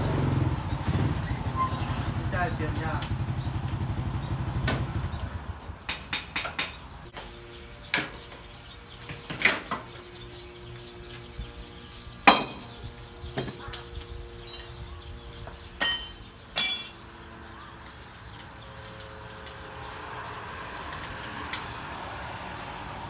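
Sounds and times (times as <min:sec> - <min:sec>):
motorcycle engine running: 0:00.0 - 0:05.8
metallic clinks of tools: 0:14.4 - 0:14.8, 0:15.8 - 0:17.2.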